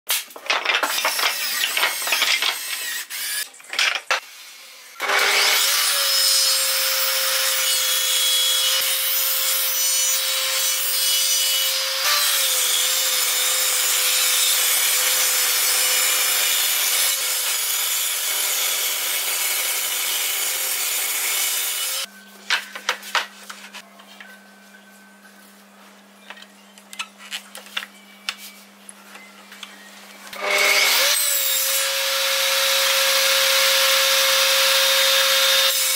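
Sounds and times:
wood strips knocking together: 0.1s - 2.8s
table saw ripping wood: 0.1s - 4.2s, 30.4s - 35.9s.

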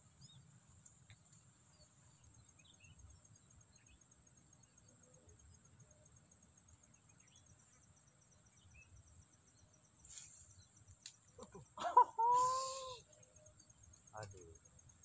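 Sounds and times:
insects trilling: 0.0s - 15.0s
faint bird chirps: 11.4s - 14.6s.

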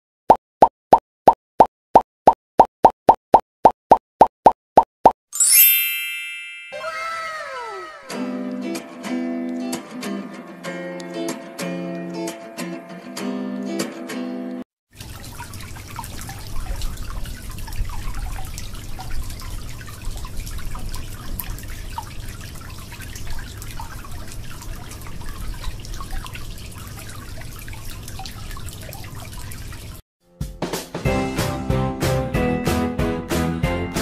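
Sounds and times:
guitar music: 7.9s - 14.6s
water splashing into steel bowl: 15.0s - 30.0s.

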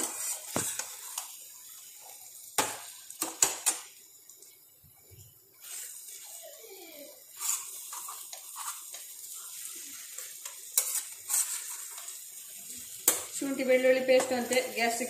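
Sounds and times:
spatula scraping frying pan: 0.0s - 1.4s, 5.6s - 6.4s, 7.2s - 15.0s
food sizzling: 0.0s - 15.0s
spatula clacking on pan: 2.6s - 3.8s, 7.5s - 12.2s, 13.0s - 13.4s.

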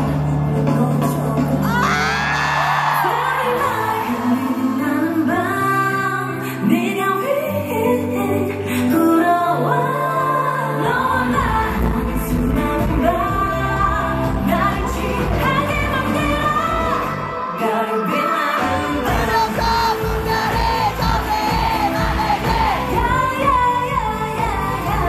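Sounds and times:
loud backing track: 0.0s - 5.7s, 11.2s - 25.0s
women singing into microphones: 0.0s - 25.0s
heavy bass beat: 19.1s - 25.0s.

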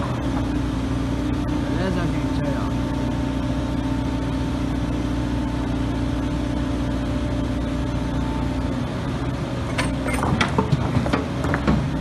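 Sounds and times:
diesel engine running under load: 0.0s - 12.0s
bricks clattering into truck bed: 9.7s - 11.9s.

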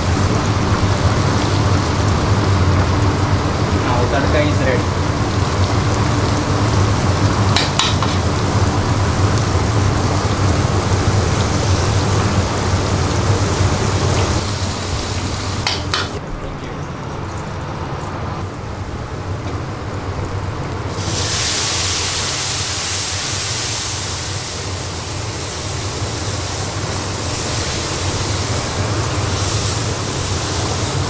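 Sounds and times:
oil sizzling in a wok: 0.0s - 16.2s, 20.8s - 31.0s
ladle knocking on wok: 7.5s - 8.2s, 15.6s - 16.2s.

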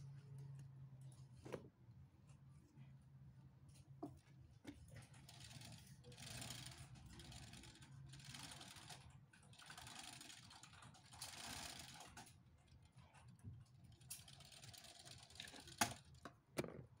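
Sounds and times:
toy car wheels and gears whirring: 5.2s - 16.2s.

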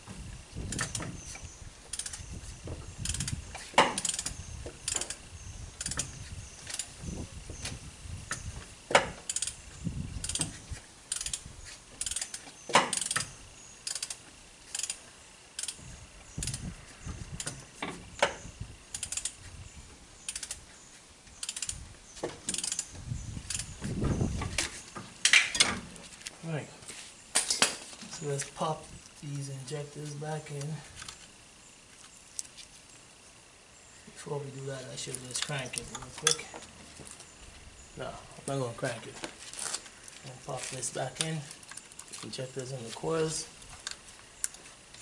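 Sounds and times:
ratchet wrench clicking: 0.7s - 1.1s, 1.9s - 2.3s, 2.9s - 5.2s, 5.8s - 7.0s, 8.3s - 9.6s, 10.2s - 16.7s, 18.9s - 19.4s, 20.2s - 20.6s, 21.4s - 21.8s, 22.5s - 23.8s.

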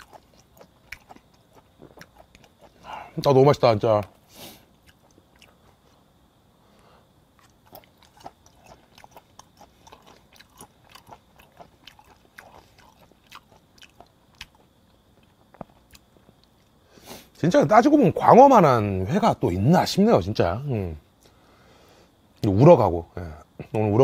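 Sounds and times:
wet chewing mouth sounds: 0.0s - 2.9s, 4.8s - 5.8s, 7.4s - 16.8s
crickets chirring: 0.0s - 24.0s.

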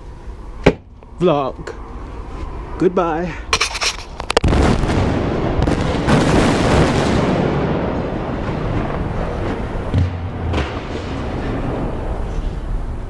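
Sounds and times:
low thuds: 4.4s - 12.7s
deep rumbling explosion boom: 4.4s - 12.8s.

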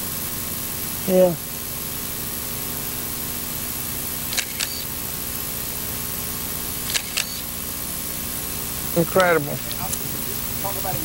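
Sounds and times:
steady background hum: 0.0s - 11.0s
camera shutter clicking: 4.3s - 4.9s, 6.8s - 7.5s.

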